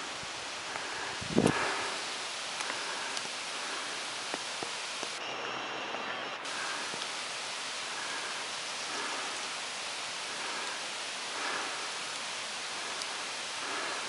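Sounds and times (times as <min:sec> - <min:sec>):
steady rain hiss: 0:00.0 - 0:14.0
light drip ticks: 0:02.6 - 0:03.4, 0:06.6 - 0:07.2, 0:07.8 - 0:14.0.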